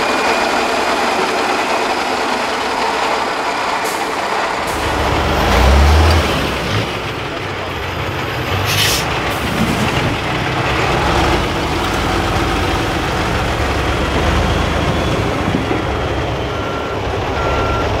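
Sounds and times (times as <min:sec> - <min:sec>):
truck diesel engine running: 0:00.0 - 0:18.0
reversing beeper: 0:11.6 - 0:18.0.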